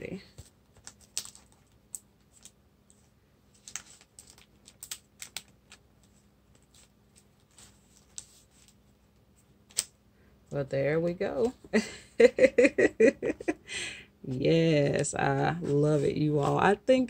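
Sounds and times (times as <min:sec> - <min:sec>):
faint steady hum: 0:00.0 - 0:17.0
craft items and paper handled: 0:00.1 - 0:09.9, 0:14.9 - 0:16.8.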